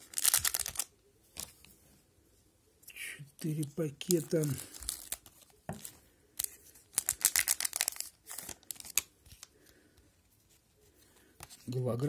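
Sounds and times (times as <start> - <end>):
plastic wrapper tearing: 0.0 - 0.9, 4.0 - 9.5.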